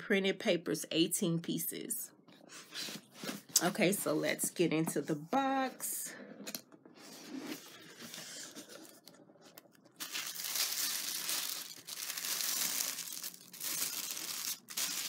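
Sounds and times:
tissue paper rustling and crinkling: 0:10.0 - 0:15.0.

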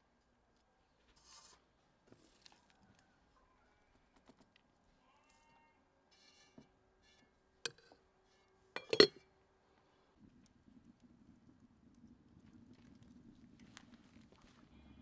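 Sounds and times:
metal spoon clinking on pot: 0:08.8 - 0:09.2.

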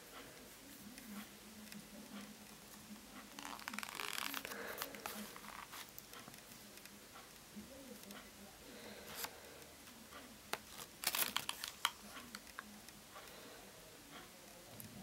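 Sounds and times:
paper pages rustling: 0:03.3 - 0:06.2, 0:10.5 - 0:12.6.

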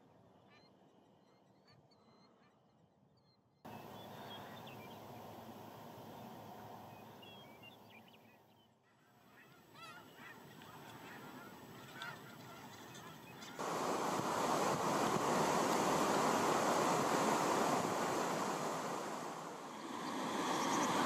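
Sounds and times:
geese honking: 0:09.2 - 0:21.0
stream rushing: 0:13.6 - 0:21.0.

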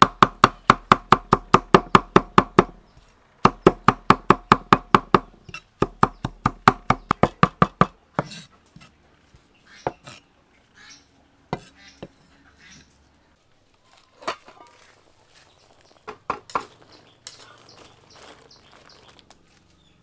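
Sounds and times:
knife blade scraping board: 0:08.2 - 0:08.9, 0:09.8 - 0:10.3, 0:11.5 - 0:12.9.

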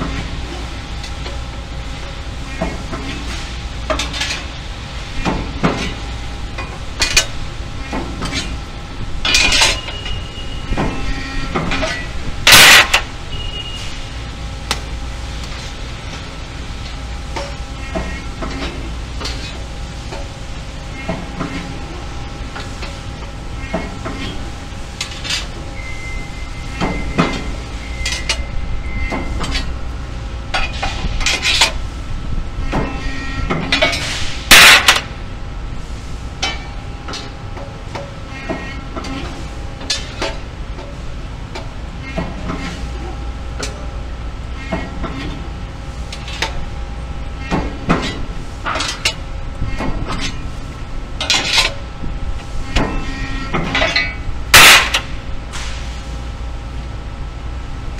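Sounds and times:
machine hum with faint whine: 0:00.0 - 0:57.9
steel parts clanking: 0:09.2 - 0:10.2, 0:11.0 - 0:13.1, 0:33.6 - 0:35.1, 0:51.2 - 0:51.8, 0:52.7 - 0:55.2
loud metal clang: 0:12.5 - 0:13.1, 0:34.5 - 0:35.1, 0:54.5 - 0:55.1.

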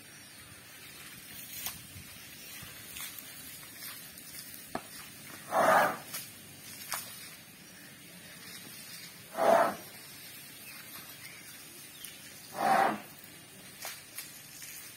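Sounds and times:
hose spraying water: 0:01.4 - 0:07.5, 0:08.4 - 0:10.2, 0:11.8 - 0:14.9
elephant blowing through trunk: 0:05.5 - 0:06.1, 0:09.3 - 0:09.9, 0:12.5 - 0:13.1.

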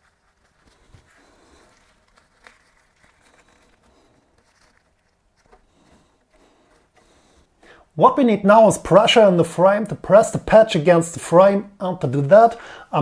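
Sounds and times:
faint soft clicks and rustles: 0:00.0 - 0:07.6.

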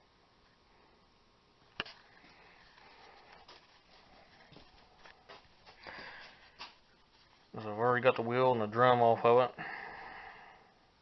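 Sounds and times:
faint ticks and rustles: 0:01.7 - 0:09.4.

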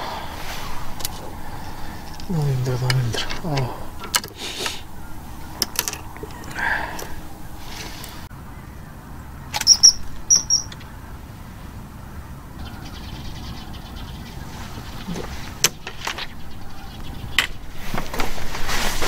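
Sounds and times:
low outdoor background: 0:00.0 - 0:19.0
sharp clicks and knocks: 0:02.1 - 0:04.8, 0:05.6 - 0:07.2
high bird chirps: 0:03.4 - 0:11.2, 0:12.4 - 0:17.8.

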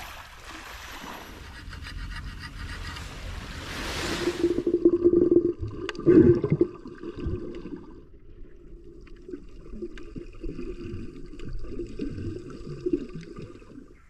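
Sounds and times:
muffled underwater gurgling: 0:04.2 - 0:08.0.

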